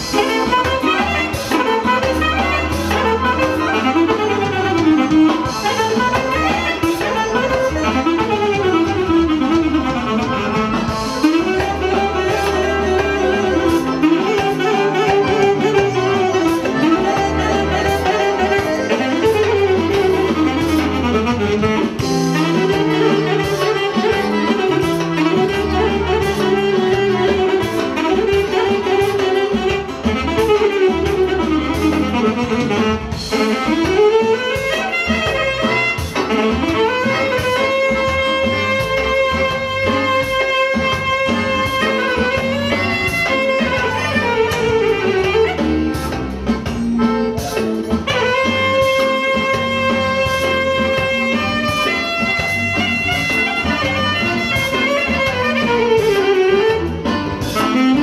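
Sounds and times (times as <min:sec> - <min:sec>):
bass: 0:00.0 - 0:58.0
steady drum beat: 0:00.0 - 0:58.0
wind instrument melody: 0:00.0 - 0:58.0.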